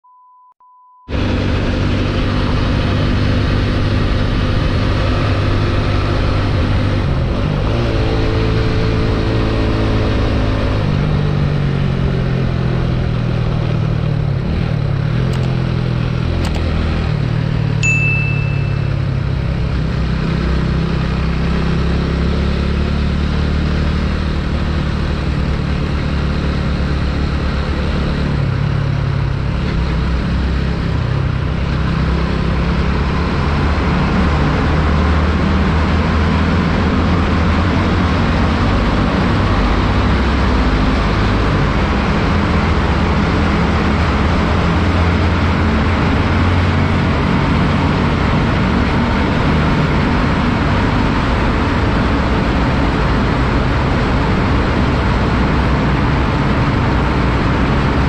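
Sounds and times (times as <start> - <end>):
short high beep: 0.0 - 1.1, 17.8 - 19.2.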